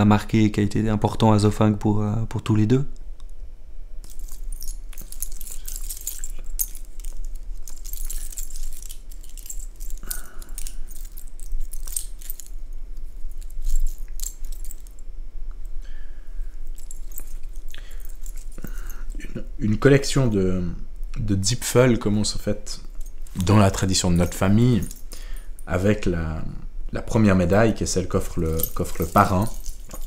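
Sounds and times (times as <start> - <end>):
metal pendants clinking and jingling: 4.0 - 15.0, 16.5 - 19.4, 22.8 - 25.7, 27.5 - 30.0.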